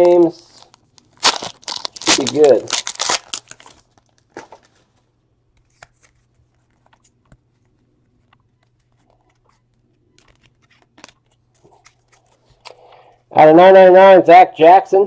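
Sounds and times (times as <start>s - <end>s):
cards clicking and rustling: 0.6s - 4.8s, 5.5s - 12.8s.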